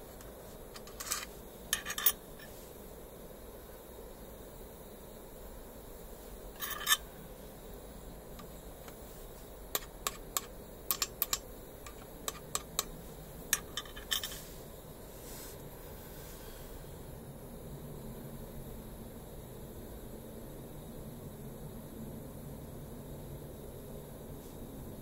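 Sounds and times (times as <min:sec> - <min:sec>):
faint background noise: 0:00.0 - 0:25.0
small metal parts clicking: 0:00.7 - 0:02.5, 0:06.6 - 0:07.0, 0:09.7 - 0:12.9, 0:13.5 - 0:14.4
metal scrape: 0:00.8 - 0:02.7, 0:06.6 - 0:07.1, 0:13.6 - 0:16.6.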